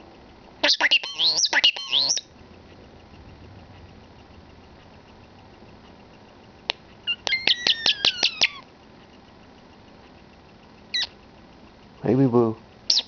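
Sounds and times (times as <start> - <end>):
starling whistling: 0.6 - 2.4, 7.0 - 8.6
starling clicking: 1.5 - 12.0.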